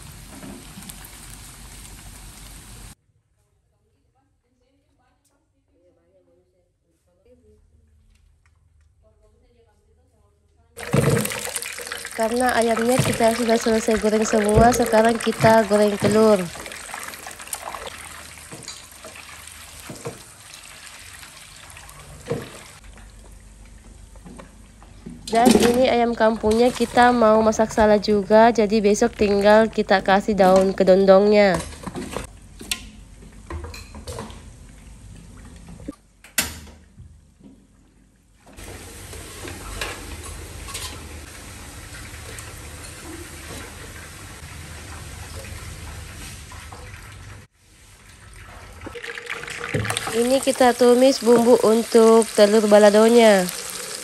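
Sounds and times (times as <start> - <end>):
eggs deep-frying in hot oil: 0.0 - 3.0, 10.8 - 32.3, 38.6 - 54.0.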